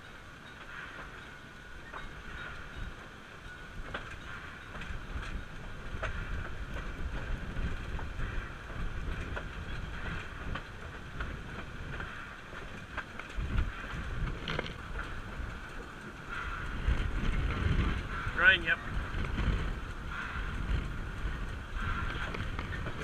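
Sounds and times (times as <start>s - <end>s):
steam locomotive rumble: 0.0s - 23.0s
wind on the microphone: 1.8s - 23.0s
sharp clicks and knocks: 6.0s - 16.2s, 19.1s - 23.0s.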